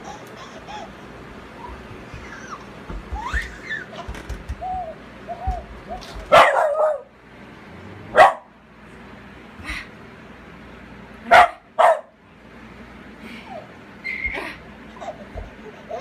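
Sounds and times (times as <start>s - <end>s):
dog barking: 6.3s - 7.1s, 8.2s - 8.5s, 11.3s - 12.2s.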